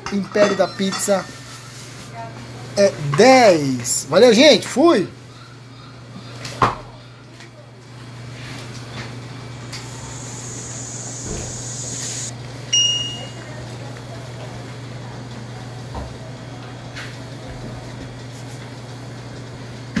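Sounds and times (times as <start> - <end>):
room hum: 8.7 - 12.3.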